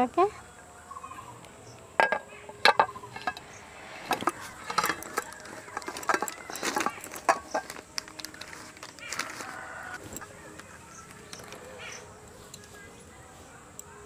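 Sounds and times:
metal pot clinking against plate: 2.0s - 3.4s, 4.2s - 7.8s.

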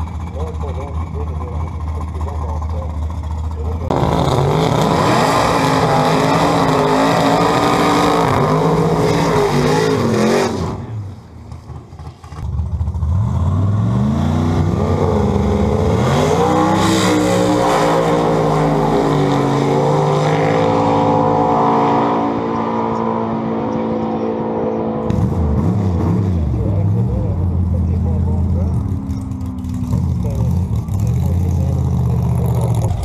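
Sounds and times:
drag car engine revving: 0.0s - 33.0s.

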